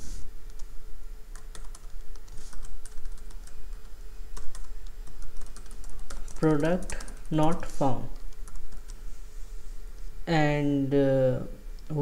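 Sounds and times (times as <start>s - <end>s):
faint steady hum: 0.0s - 12.0s
keyboard typing: 1.3s - 9.0s.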